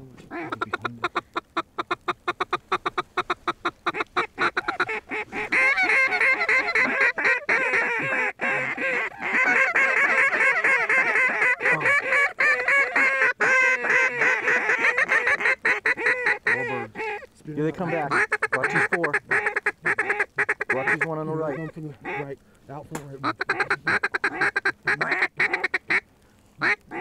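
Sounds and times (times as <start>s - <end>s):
ducks quacking: 0.0s - 27.0s
geese honking: 0.0s - 27.0s.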